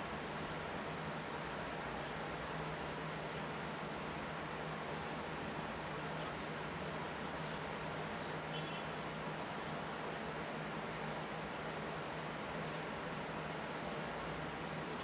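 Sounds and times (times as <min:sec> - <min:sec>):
outdoor background hiss: 0:00.0 - 0:15.0
sparrows chirping: 0:01.6 - 0:06.5, 0:10.9 - 0:12.8.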